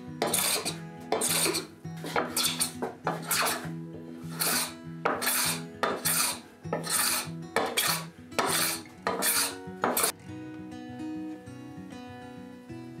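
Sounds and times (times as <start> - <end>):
soft background music: 0.0 - 13.0
blade rasping on wood: 0.2 - 10.1.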